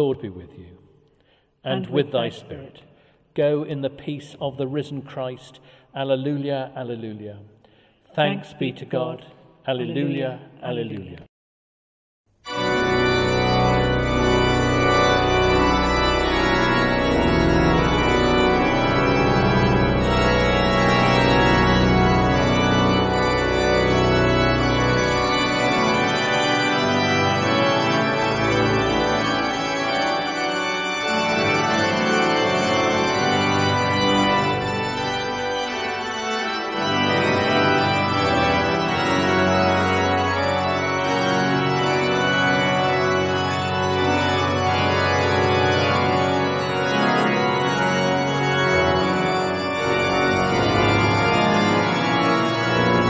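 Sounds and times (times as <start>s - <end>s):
church organ chords: 0.0s - 0.8s, 1.6s - 11.0s, 12.4s - 53.0s
deep organ pedal bass: 12.5s - 53.0s.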